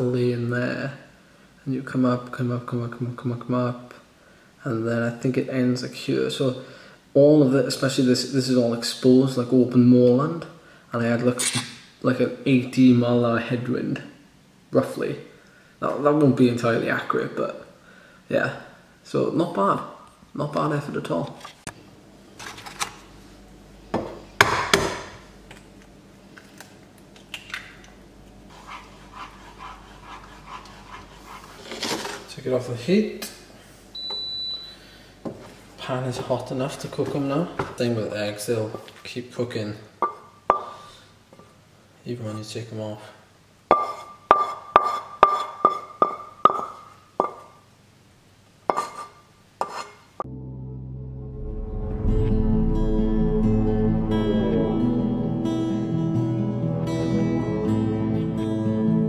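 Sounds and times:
utensil knocking frying pan: 0:40.0 - 0:40.8, 0:43.7 - 0:47.5.

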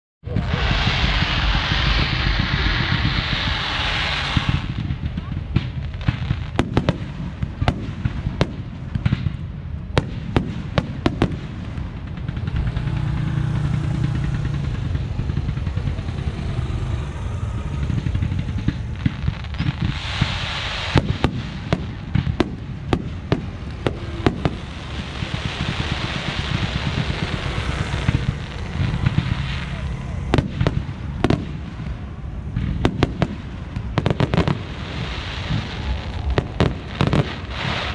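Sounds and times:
fireworks bursting: 0:00.2 - 0:37.9
motor scooter passing: 0:12.2 - 0:19.9, 0:23.4 - 0:32.8.

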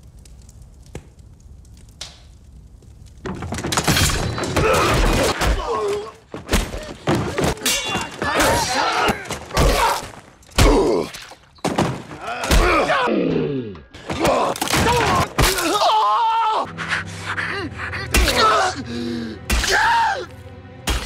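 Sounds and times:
crashes and shattering: 0:03.2 - 0:12.9, 0:14.0 - 0:15.9.

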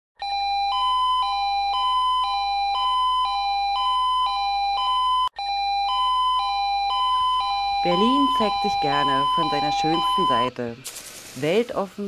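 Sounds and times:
two-tone emergency siren: 0:00.2 - 0:10.5.

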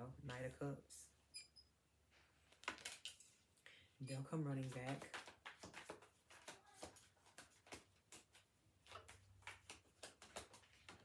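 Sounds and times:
cards being shuffled: 0:02.5 - 0:03.4, 0:04.6 - 0:11.0.

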